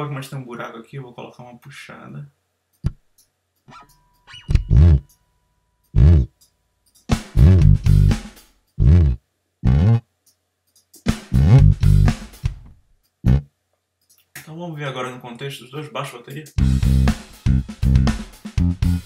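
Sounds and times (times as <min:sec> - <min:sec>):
plucked electric bass notes: 0:04.5 - 0:05.0, 0:06.0 - 0:06.3, 0:07.4 - 0:08.2, 0:08.8 - 0:10.0, 0:11.4 - 0:12.1, 0:13.3 - 0:13.5, 0:16.6 - 0:19.0.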